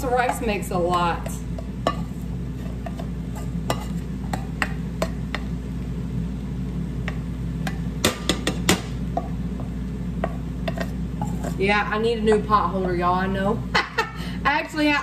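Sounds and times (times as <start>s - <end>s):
spoon knocking against pots: 7.1s - 9.4s
wooden spoon scraping rice: 10.7s - 11.8s.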